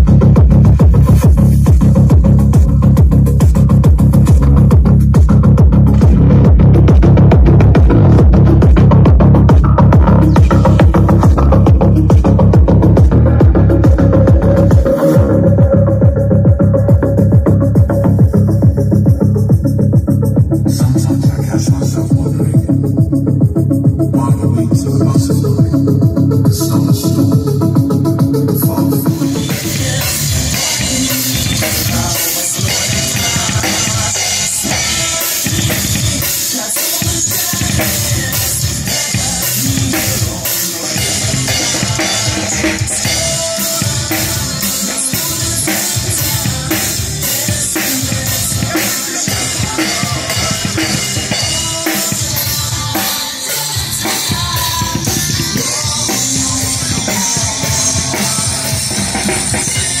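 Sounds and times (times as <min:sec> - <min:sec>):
drum kit playing a beat: 0:00.0 - 1:00.0
music: 0:00.0 - 1:00.0.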